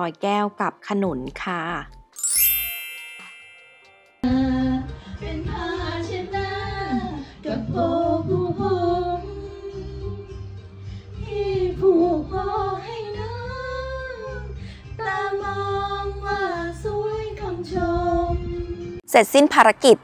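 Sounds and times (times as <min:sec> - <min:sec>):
bright chime: 0:02.2 - 0:04.3
pop song with woman singing: 0:04.2 - 0:10.4, 0:11.2 - 0:18.8.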